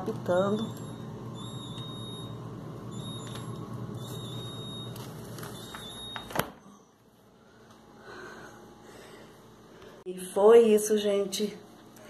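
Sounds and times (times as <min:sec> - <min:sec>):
fridge alarm beeping: 0:00.0 - 0:07.6
fridge humming: 0:00.0 - 0:09.2.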